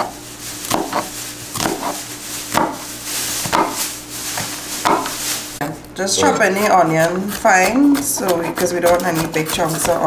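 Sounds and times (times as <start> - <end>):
knife cutting onion on wooden board: 6.2 - 10.0.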